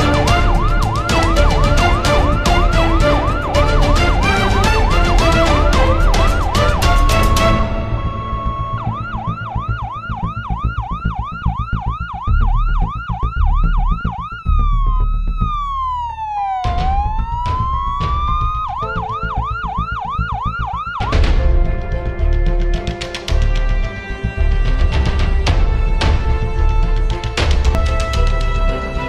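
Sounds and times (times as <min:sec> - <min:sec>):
emergency siren yelp and wail: 0:00.0 - 0:21.6
low rumble: 0:00.0 - 0:28.6
music: 0:00.0 - 0:29.0.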